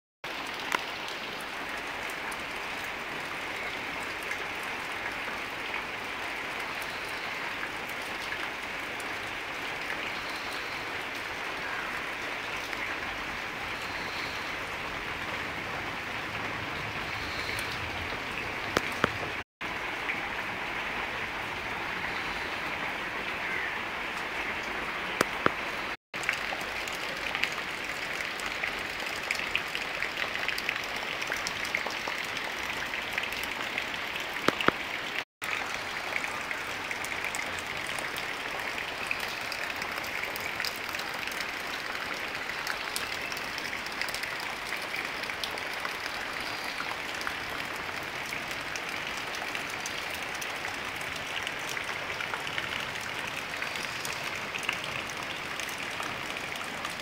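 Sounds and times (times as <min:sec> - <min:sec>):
heavy rain falling: 0:00.2 - 0:57.0
drip splashes: 0:17.0 - 0:19.4, 0:25.2 - 0:57.0.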